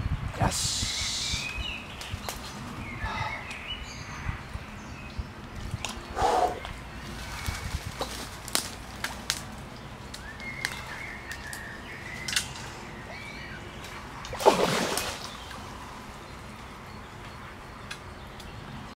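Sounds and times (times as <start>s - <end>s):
faint bird call: 6.1s - 6.7s
fish thrashing and splashing: 14.3s - 15.5s.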